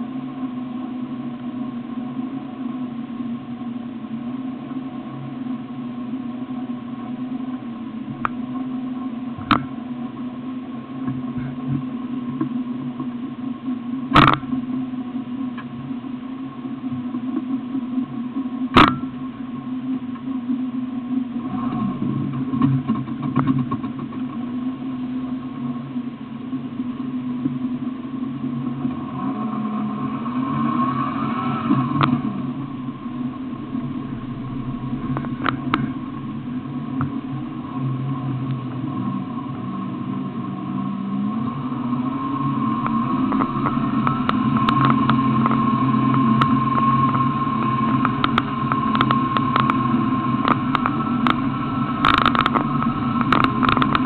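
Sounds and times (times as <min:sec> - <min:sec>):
engine revving: 0:29.0 - 0:54.0
vehicle engine idling: 0:31.8 - 0:54.0.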